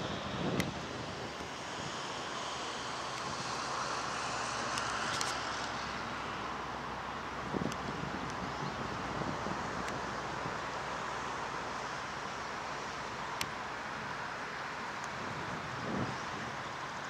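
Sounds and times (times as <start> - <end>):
wind gust on microphone: 0.0 - 6.0, 7.3 - 11.1, 15.2 - 16.9.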